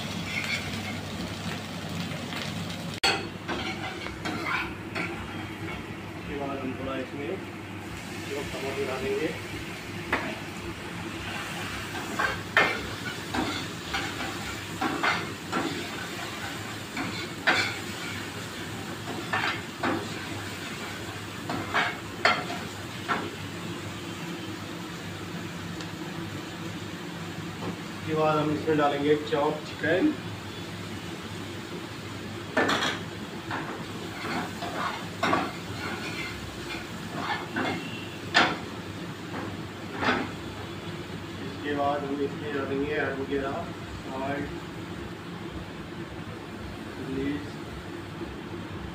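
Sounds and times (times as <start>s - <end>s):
garlic sizzling in oil: 0.0s - 6.0s, 7.8s - 27.1s, 27.8s - 41.0s
metal ladle scraping pan: 0.1s - 1.0s.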